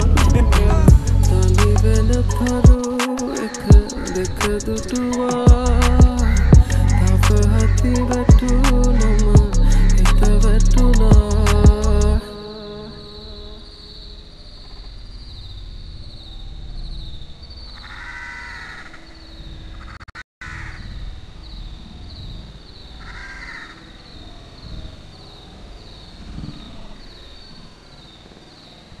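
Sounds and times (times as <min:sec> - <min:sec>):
bird calling: 0:00.0 - 0:15.6.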